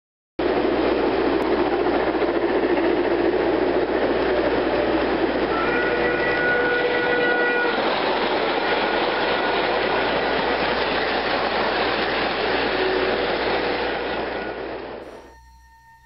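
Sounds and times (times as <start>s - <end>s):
model train wheels on track: 0.4s - 16.0s.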